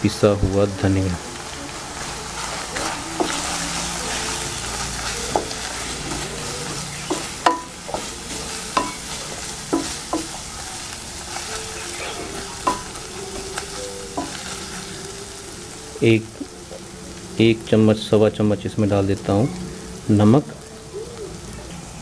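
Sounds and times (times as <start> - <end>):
masala sizzling in oil: 0.0 - 22.0
wooden spatula scraping pan: 1.9 - 15.0
spatula knocking against pan: 8.8 - 10.4.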